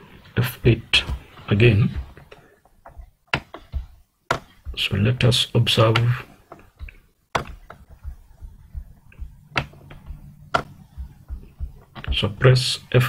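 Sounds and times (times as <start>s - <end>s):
low steady hum: 0.0s - 13.0s
computer keys and mouse clicks: 5.9s - 12.2s.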